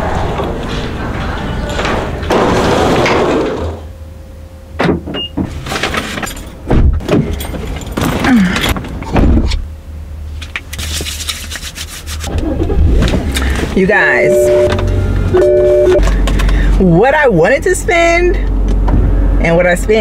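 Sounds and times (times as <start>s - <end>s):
low steady rumble: 5.6s - 20.0s
knocks and thumps: 6.7s - 9.6s.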